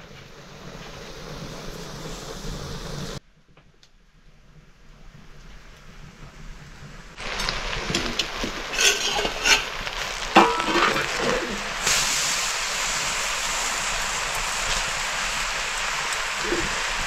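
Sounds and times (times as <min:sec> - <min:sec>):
food sizzling in hot oil: 0:00.0 - 0:03.2, 0:07.2 - 0:17.0
utensil clattering against pan: 0:08.0 - 0:11.6.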